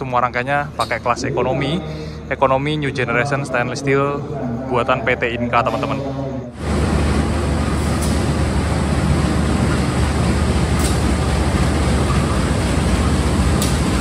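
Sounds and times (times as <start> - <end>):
locomotive engine rumble: 0.0 - 14.0
wheels on rails: 6.6 - 14.0.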